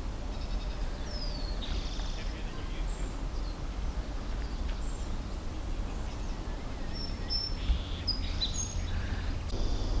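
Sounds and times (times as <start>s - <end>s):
low rumble: 9.4s - 10.0s.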